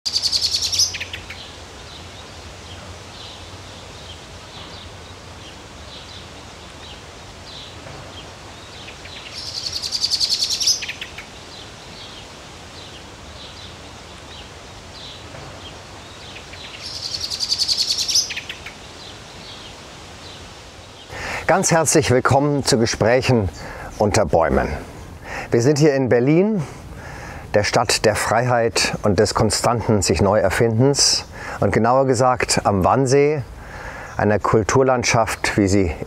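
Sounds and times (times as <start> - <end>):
bird trilled song: 0.1 - 20.4
bird chirps: 0.1 - 21.2.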